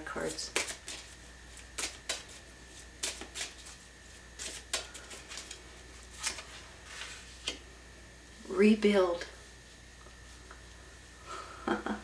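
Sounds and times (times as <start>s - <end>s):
cards clicking and tapping: 0.5s - 2.4s, 3.0s - 3.7s, 4.4s - 5.6s.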